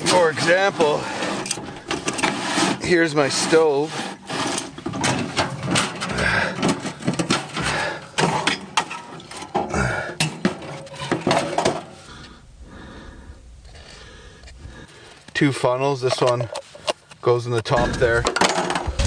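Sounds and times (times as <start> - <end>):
camp stove metal clanking: 0.0 - 12.1, 15.6 - 19.0.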